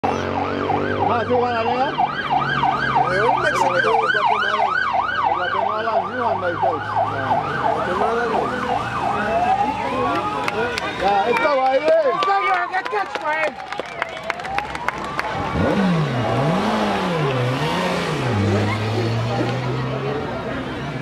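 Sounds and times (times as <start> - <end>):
siren yelping: 0.0 - 11.3, 13.7 - 16.5.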